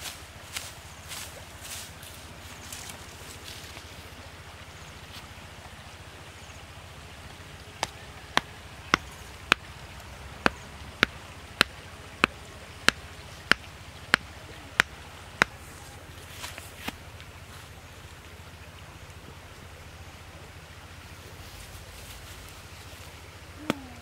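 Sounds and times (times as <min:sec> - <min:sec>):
stone pounding wooden stake: 0:07.8 - 0:15.6.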